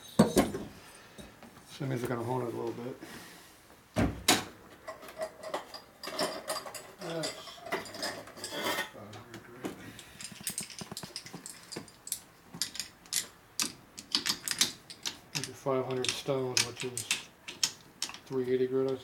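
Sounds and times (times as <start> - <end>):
metallic clicks and clinks: 10.0 - 19.0.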